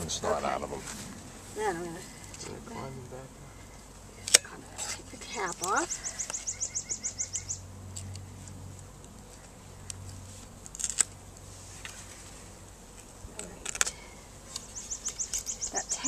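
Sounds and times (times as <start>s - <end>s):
bees humming: 0.0s - 16.0s
hive tool scraping and clicking: 4.2s - 6.5s, 7.9s - 16.0s.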